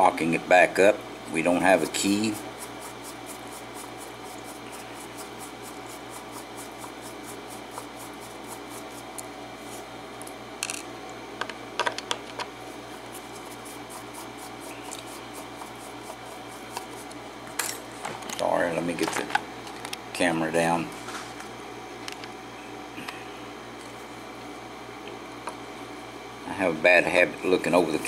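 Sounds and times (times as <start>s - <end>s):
scratching and ticking of tools: 13.1s - 17.8s.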